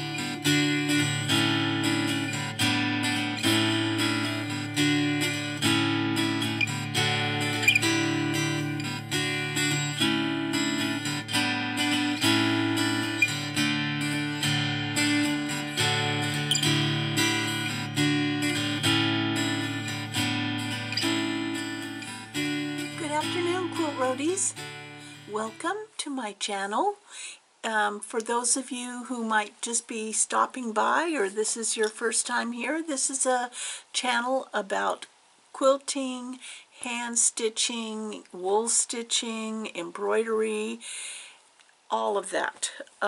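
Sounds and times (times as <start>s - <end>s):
strummed acoustic guitar chords: 0.0s - 25.6s.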